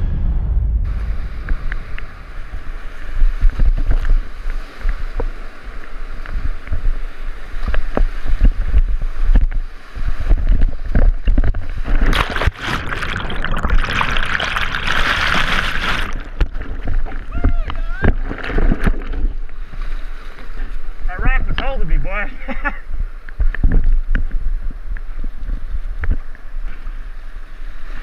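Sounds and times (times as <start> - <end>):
churning water underwater: 0.0 - 28.0
water buffeting microphone: 0.0 - 28.0
whitewater rushing and splashing: 0.9 - 22.9.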